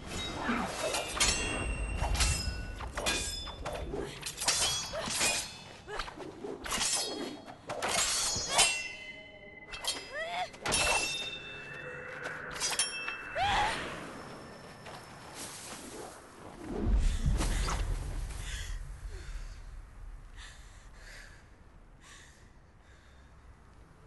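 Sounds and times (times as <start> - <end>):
swords clashing: 0.3 - 9.1, 9.7 - 11.4.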